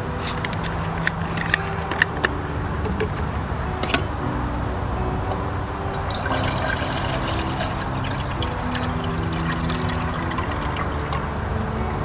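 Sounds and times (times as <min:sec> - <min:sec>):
distant motorway traffic rumble: 0:00.0 - 0:12.0
water pouring into pot: 0:05.7 - 0:11.3.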